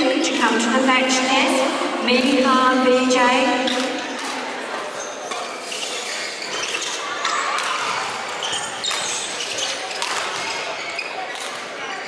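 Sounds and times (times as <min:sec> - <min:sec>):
sports hall background noise: 0:00.0 - 0:12.0
racquets hitting shuttlecock: 0:09.9 - 0:10.6.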